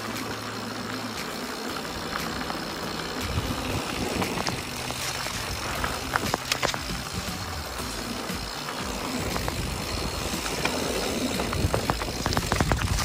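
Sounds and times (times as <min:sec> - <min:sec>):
bike rattling over bumps: 0:00.0 - 0:13.0
bike tyres rumbling on gravel: 0:00.0 - 0:13.0
wind on microphone: 0:09.0 - 0:13.0.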